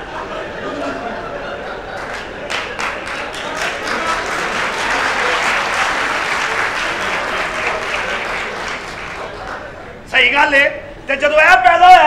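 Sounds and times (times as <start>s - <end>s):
audience applauding: 1.9s - 10.1s.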